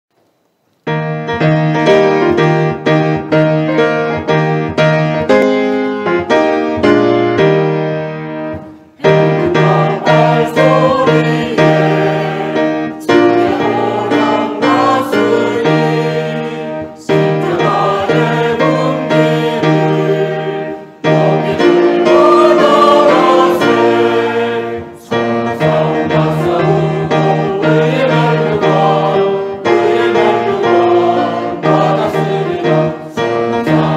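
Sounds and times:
piano march-like chords: 0.8 - 33.9
choir singing: 8.6 - 33.9.

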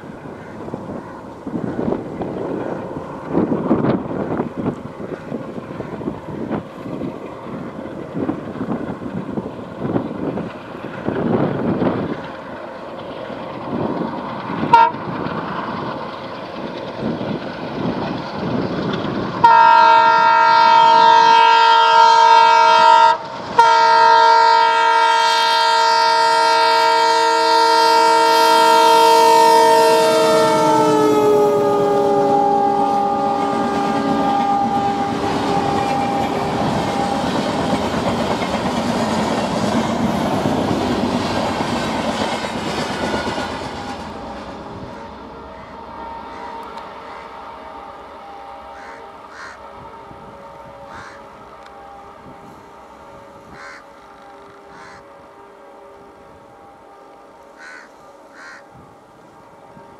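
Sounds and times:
train coaches rushing and clattering: 0.0 - 59.9
locomotive horn blast: 14.6 - 15.2, 19.4 - 38.1, 43.0 - 59.9.

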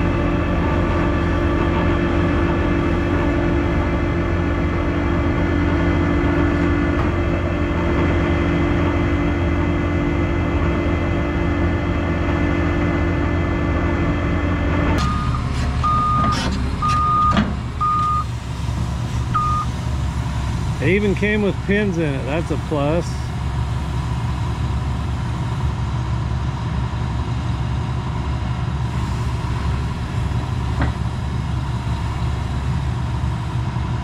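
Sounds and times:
vehicle engine running: 0.0 - 34.0
backup alarm beeping: 15.0 - 18.3, 19.3 - 19.7.

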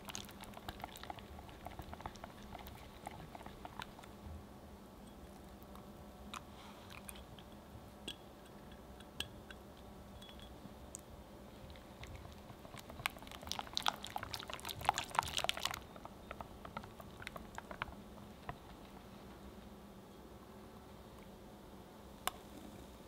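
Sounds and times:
whisk clicking in batter: 0.0 - 4.1, 12.3 - 18.0.

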